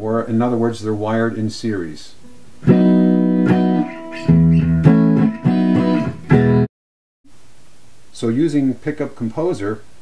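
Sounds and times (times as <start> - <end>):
electric guitar picked notes and chords: 2.2 - 6.7.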